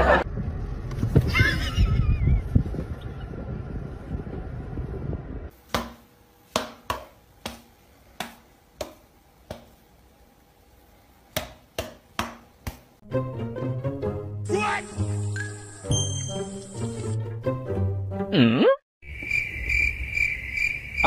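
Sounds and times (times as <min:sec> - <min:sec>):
music: 0:13.0 - 0:18.5.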